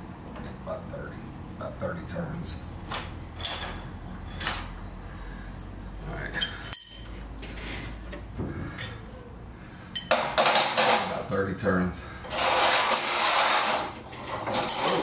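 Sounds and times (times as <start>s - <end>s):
sharp ringing metallic clink: 6.7s - 7.2s.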